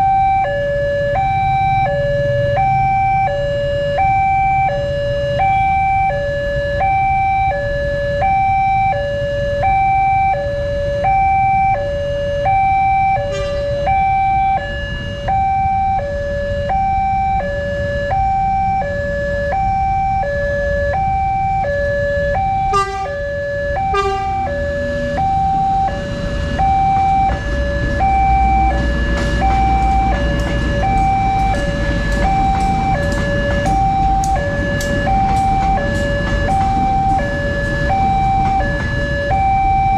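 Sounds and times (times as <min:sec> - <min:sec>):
two-tone level crossing alarm: 0:00.0 - 0:39.9
train rumbling past: 0:13.2 - 0:14.2, 0:23.8 - 0:39.9
train wheels clicking: 0:26.5 - 0:39.9.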